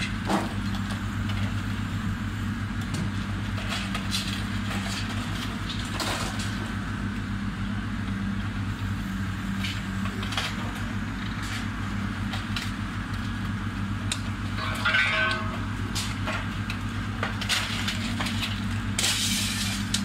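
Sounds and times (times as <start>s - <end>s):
diesel engine running: 0.0s - 20.0s
debris cracking and crunching: 2.8s - 6.8s, 9.6s - 20.0s.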